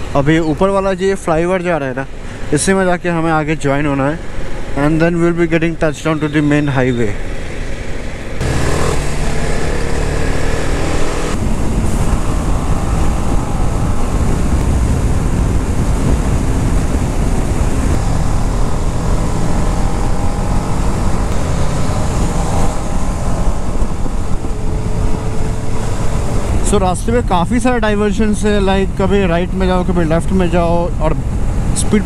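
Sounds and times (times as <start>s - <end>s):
motorcycle engine running: 7.3s - 26.8s
wind rushing over microphone: 8.2s - 32.0s.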